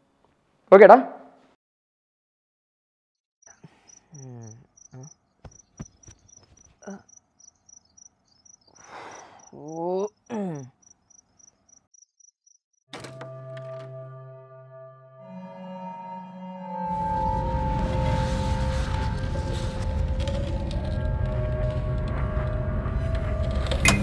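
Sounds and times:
crickets chirping: 3.4s - 12.6s
sustained humming tone: 13.2s - 24.0s.

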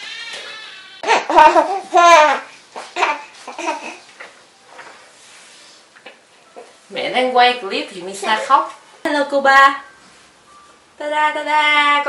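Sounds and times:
baby crying: 0.0s - 4.0s.

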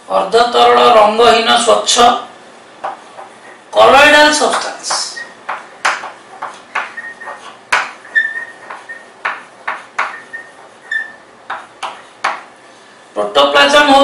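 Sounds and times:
chalk scratching on blackboard: 4.3s - 12.5s
chalk squeaks: 4.3s - 12.5s.

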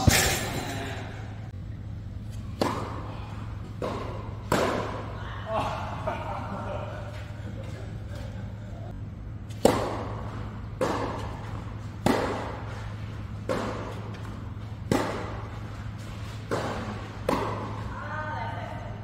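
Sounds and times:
steady low hum: 0.0s - 19.0s
tennis balls struck with rackets: 2.3s - 5.2s, 9.5s - 17.9s.

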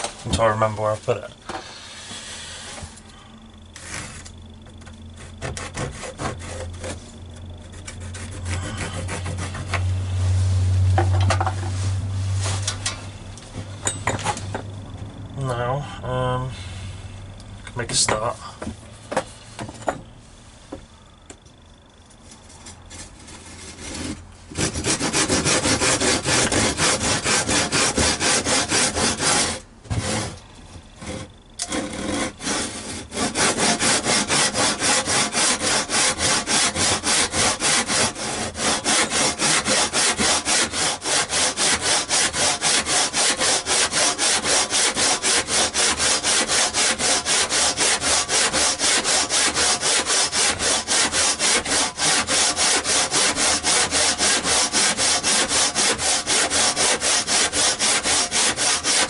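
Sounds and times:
handsaw cutting timber: 5.2s - 10.4s, 22.9s - 30.4s, 31.0s - 59.0s.

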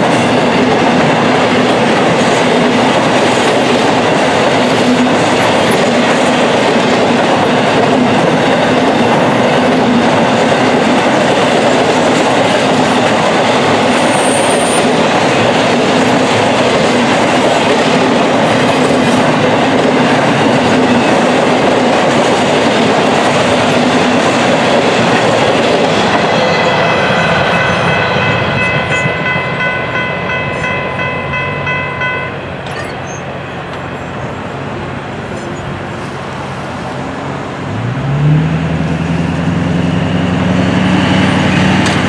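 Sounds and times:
train wheels clattering: 0.0s - 32.8s
high ringing tone: 26.3s - 33.3s
vehicle engine pulling away: 37.7s - 42.0s.

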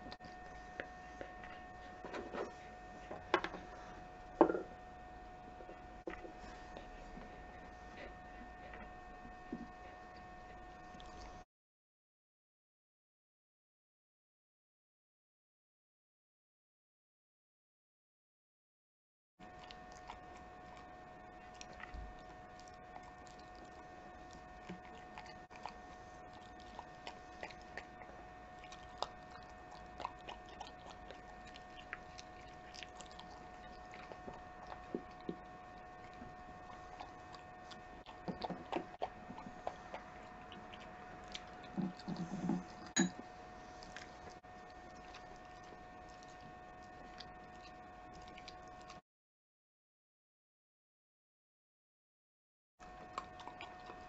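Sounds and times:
dog chewing food: 0.0s - 4.8s, 5.4s - 11.4s, 19.4s - 49.0s, 52.8s - 54.0s.

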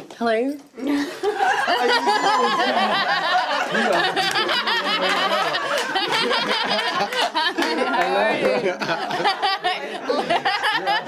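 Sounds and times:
group laughing and exclaiming: 0.9s - 11.0s
hand clapping: 3.6s - 8.6s.

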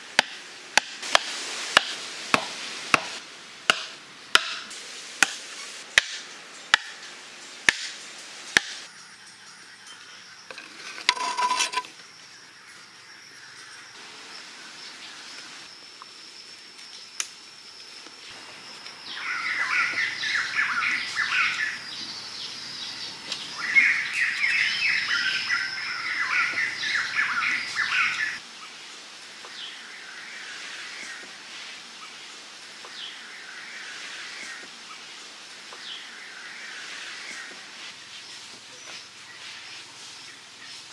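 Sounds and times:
wooden club knocking stake: 3.7s - 4.6s
high insect drone: 8.9s - 31.1s.

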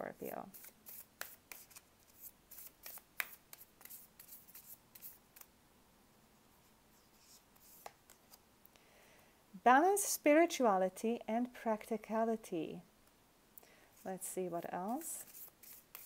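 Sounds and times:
cards shuffling: 0.5s - 5.5s, 7.2s - 8.4s, 14.9s - 16.0s.

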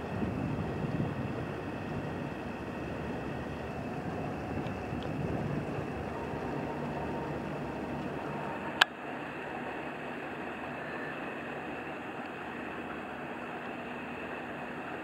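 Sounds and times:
cargo barge passing: 0.0s - 15.0s.

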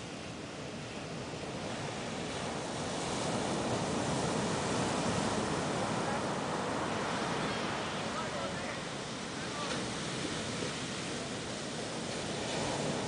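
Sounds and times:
wave breaking and washing up sand: 0.0s - 13.0s.

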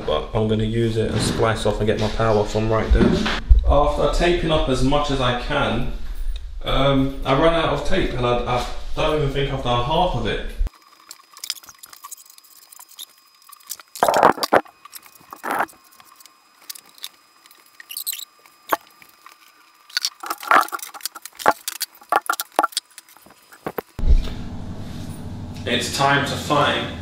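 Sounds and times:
scraping rustles: 10.7s - 24.0s.

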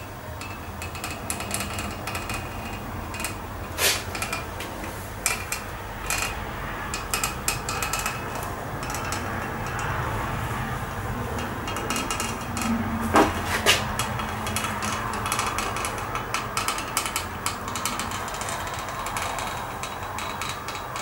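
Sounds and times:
steady low hum: 0.0s - 21.0s
sharp knocks: 11.4s - 21.0s.

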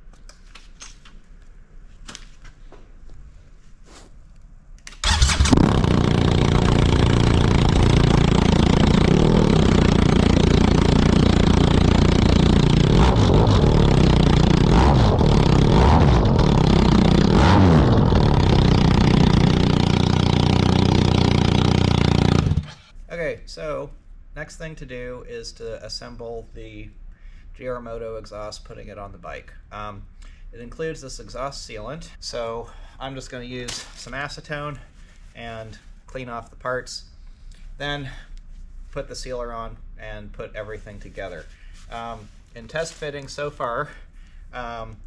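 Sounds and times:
motorcycle engine idling loudly: 5.1s - 22.9s.

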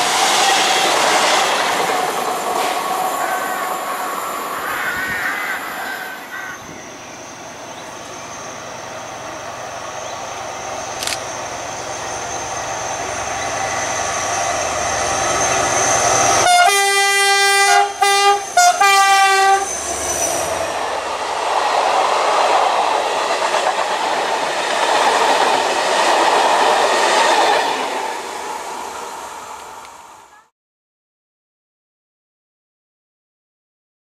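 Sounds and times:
train wheels clattering on rails: 0.0s - 4.5s, 20.7s - 28.7s
diesel locomotive engine running: 0.0s - 30.4s
train horn blasts: 16.3s - 19.8s.

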